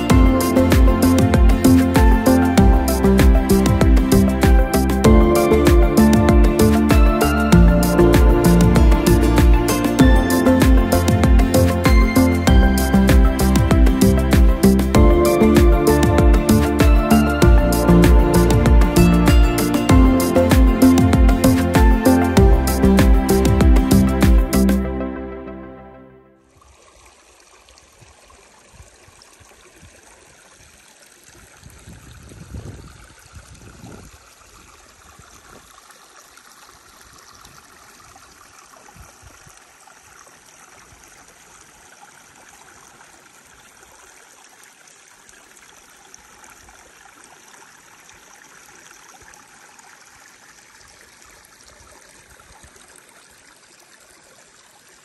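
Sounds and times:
stream trickling over rocks: 0:00.0 - 0:25.0, 0:26.4 - 0:55.0
low rumbles: 0:00.1 - 0:24.8.

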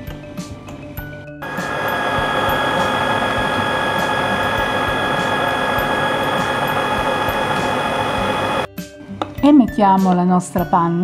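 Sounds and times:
food processor motor whining: 0:01.4 - 0:08.7.

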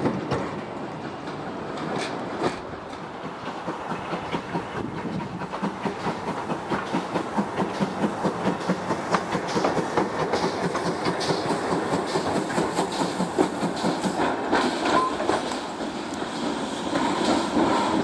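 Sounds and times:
train wheels clicking over rail joints: 0:00.0 - 0:18.0.

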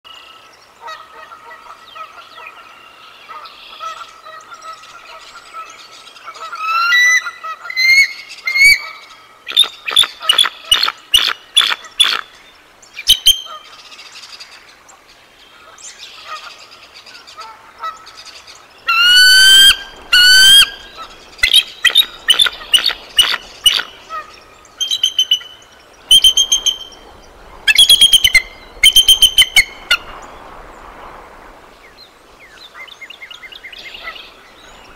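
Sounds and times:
eagle alarm calls: 0:06.3 - 0:12.4, 0:18.8 - 0:30.2.

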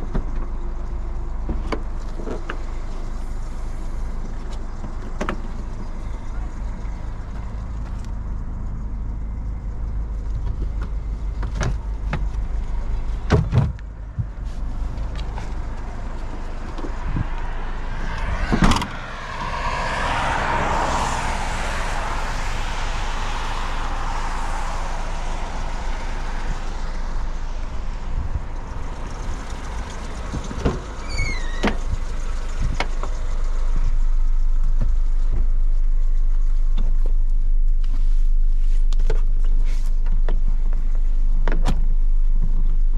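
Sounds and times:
car engine rumbling: 0:00.0 - 0:42.9
rushing noise: 0:14.4 - 0:31.5.

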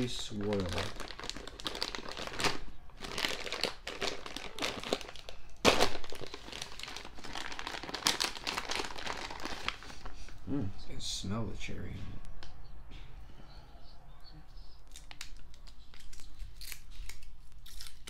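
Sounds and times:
chocolate wrapper crinkling: 0:00.0 - 0:10.1, 0:14.8 - 0:18.0.

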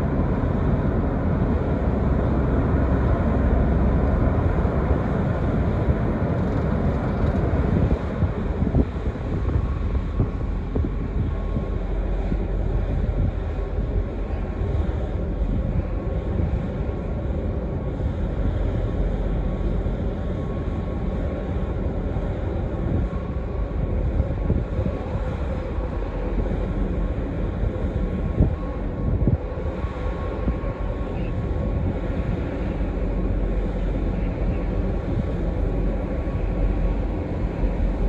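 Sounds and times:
faint steady hum: 0:00.0 - 0:38.0
ship machinery low rumble: 0:00.0 - 0:38.0.

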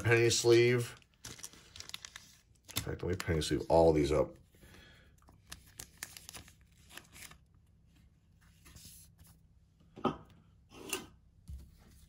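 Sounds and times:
rustling of cards and plastic sleeves: 0:00.0 - 0:09.6.

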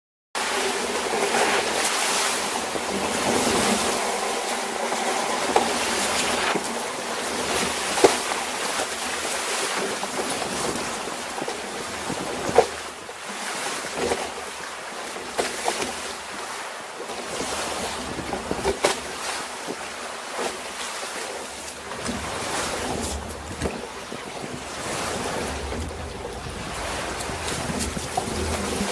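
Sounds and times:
water splashing against hull: 0:00.4 - 0:28.9
wind buffeting microphone: 0:22.0 - 0:28.9.

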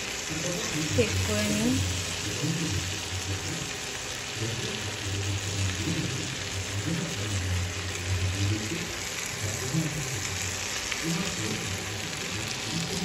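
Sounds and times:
prawns sizzling in oil: 0:00.0 - 0:13.0.

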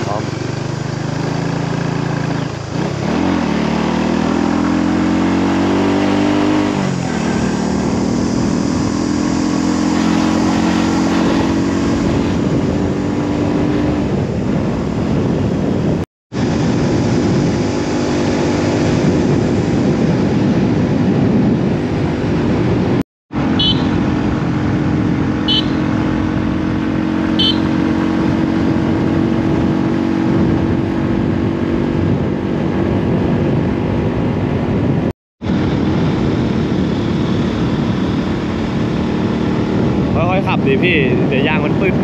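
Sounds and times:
motorcycle engine pulling away: 0:00.0 - 0:14.4, 0:35.5 - 0:40.2
wind rushing: 0:01.4 - 0:42.0.

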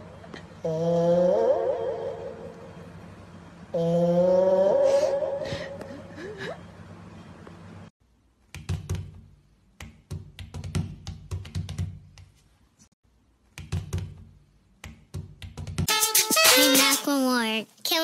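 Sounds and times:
faint steady hum: 0:00.0 - 0:08.5.

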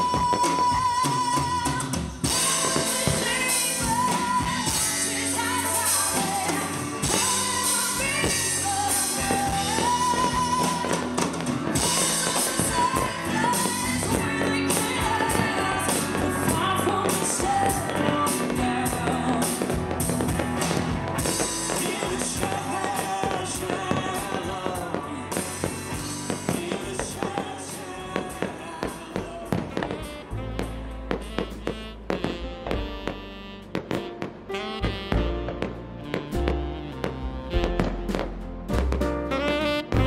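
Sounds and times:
woman singing: 0:00.0 - 0:20.5, 0:21.2 - 0:32.4
rock band with drums: 0:00.0 - 0:40.0.

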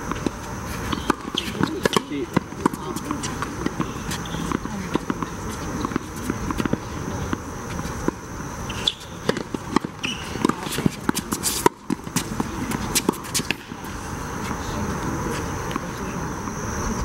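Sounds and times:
tennis ball bouncing: 0:00.0 - 0:13.8
racket striking tennis ball: 0:00.9 - 0:07.4, 0:08.0 - 0:13.8.

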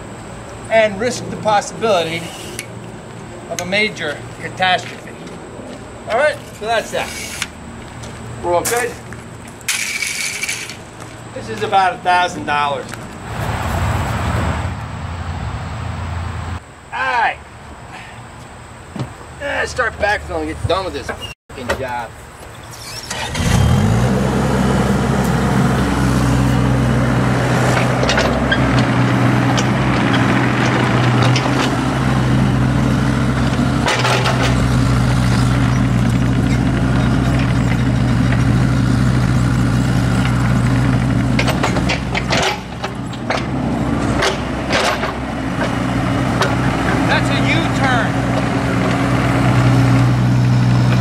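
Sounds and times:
mini excavator diesel engine: 0:22.6 - 0:51.0.

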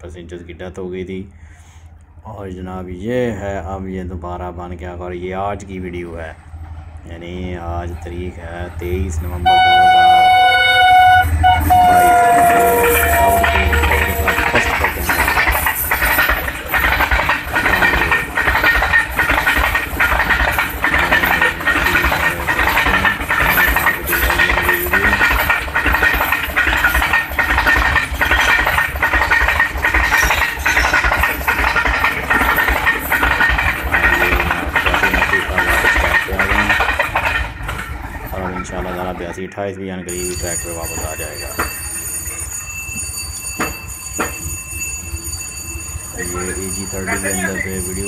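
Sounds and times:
train rumble: 0:00.0 - 0:48.0
wheels clicking over rail joints: 0:04.4 - 0:48.0
thin high ringing tone: 0:09.1 - 0:36.8, 0:40.1 - 0:48.0.

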